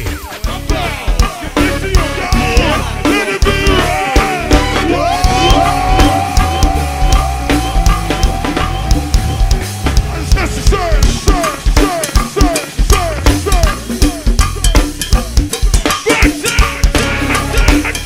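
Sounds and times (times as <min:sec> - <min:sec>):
drum kit beat: 0:00.0 - 0:18.0
live band music: 0:00.0 - 0:18.0
short falling tone: 0:04.9 - 0:10.8.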